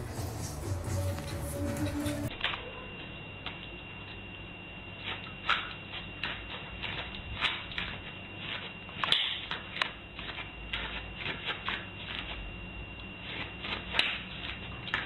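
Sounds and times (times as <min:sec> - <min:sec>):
dog claws clicking on floor: 0:05.1 - 0:12.4.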